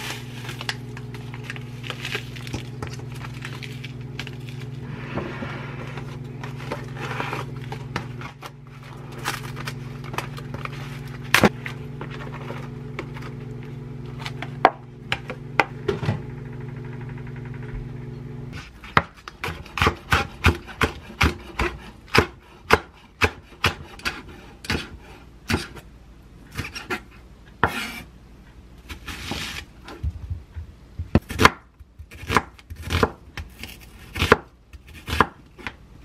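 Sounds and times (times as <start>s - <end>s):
plastic packet rustling: 0.0s - 4.8s, 6.0s - 13.4s
plastic tray unpacking: 0.0s - 4.8s, 6.0s - 13.4s
steady low hum: 0.0s - 28.9s.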